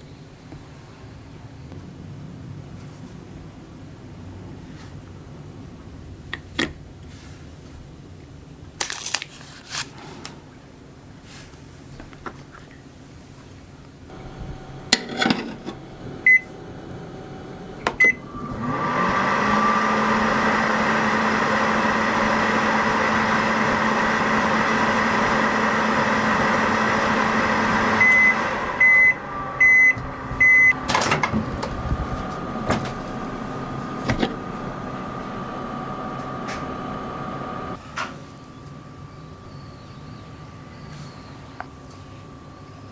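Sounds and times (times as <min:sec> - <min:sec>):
microwave oven humming: 0:14.1 - 0:42.9
microwave beeps: 0:16.2 - 0:16.6, 0:17.8 - 0:18.6, 0:27.9 - 0:30.8.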